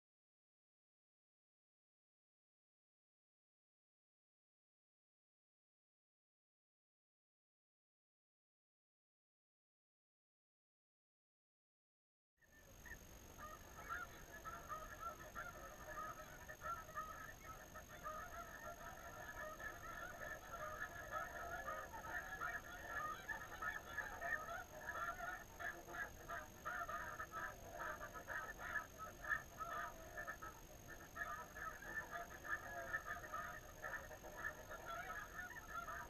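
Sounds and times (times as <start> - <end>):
flock of geese honking: 12.6 - 36.0.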